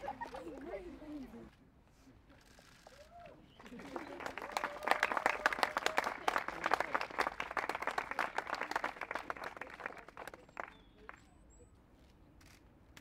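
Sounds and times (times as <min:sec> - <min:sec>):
people clapping: 0:02.9 - 0:11.2.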